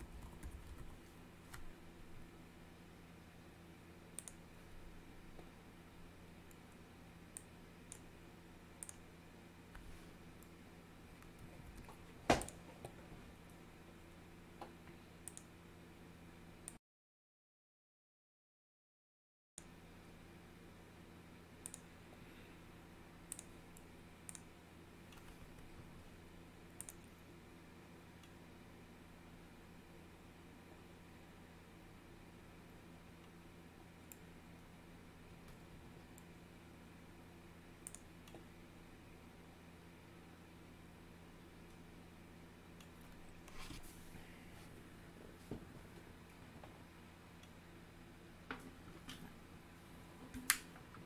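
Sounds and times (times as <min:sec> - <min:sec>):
low steady hum: 0:00.0 - 0:16.8, 0:19.6 - 0:51.0
faint sharp clicks: 0:37.8 - 0:38.4.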